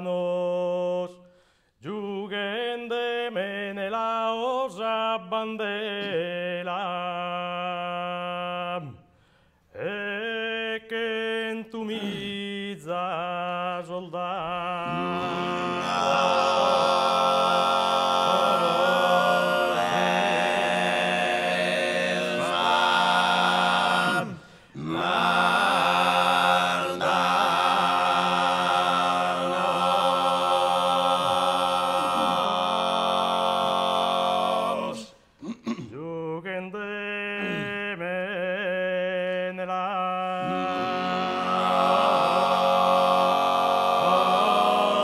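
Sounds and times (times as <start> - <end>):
male vocal group droning chords: 9.8 - 35.2, 35.9 - 45.0.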